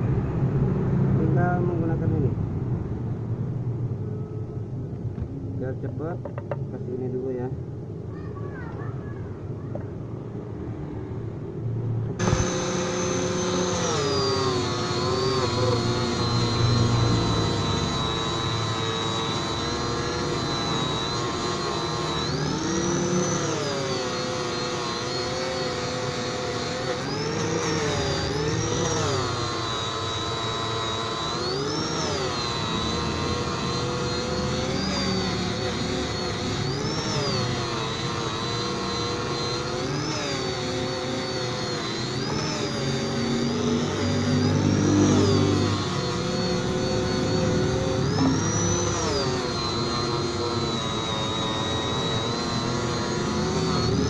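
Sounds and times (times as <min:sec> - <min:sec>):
angle grinder motor whine: 0:12.2 - 0:54.0
disc grinding metal: 0:12.2 - 0:54.0.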